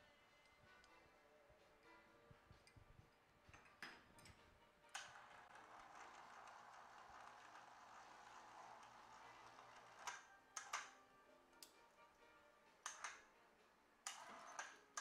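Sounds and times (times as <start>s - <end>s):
electric hoist whirring: 4.9s - 10.9s, 14.1s - 15.0s.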